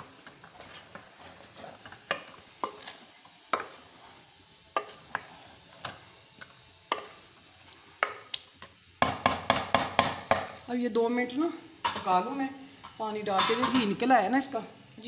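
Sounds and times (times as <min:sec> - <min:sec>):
faint sizzle: 0:00.0 - 0:15.0
spoon knocking metal pot: 0:13.4 - 0:13.9.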